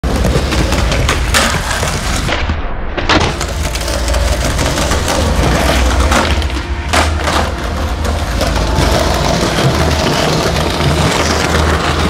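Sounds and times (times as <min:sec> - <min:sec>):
skateboard clacks: 0:00.0 - 0:02.5, 0:03.1 - 0:12.0
skateboard wheels rolling on concrete: 0:00.0 - 0:12.0.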